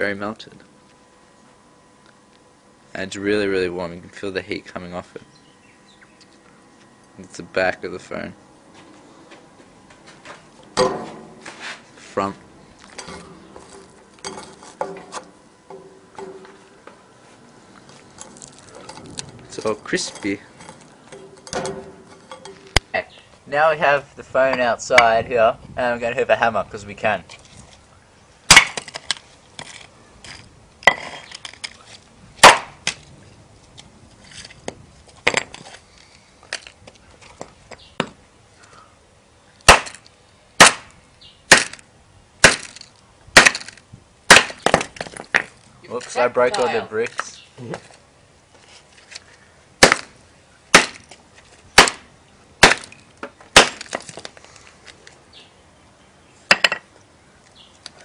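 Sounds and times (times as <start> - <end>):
hammer blows cracking: 10.8 - 11.6, 28.5 - 31.8, 32.4 - 33.0, 39.6 - 41.8, 42.4 - 45.6, 49.8 - 51.2, 51.8 - 54.3
breaking plastic clattering: 51.8 - 54.3.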